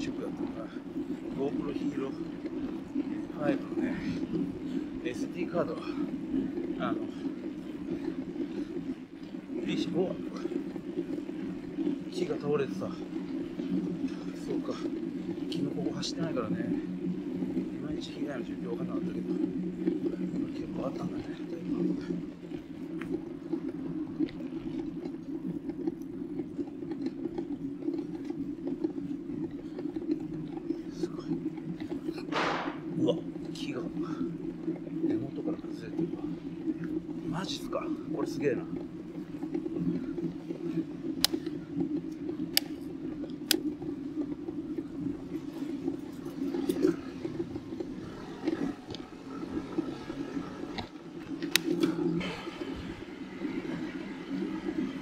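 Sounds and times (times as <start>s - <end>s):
bicycle ticks and rattles: 0.0s - 55.0s
bicycle tyres rolling on road: 0.0s - 55.0s
sharp clicks: 32.3s - 32.9s.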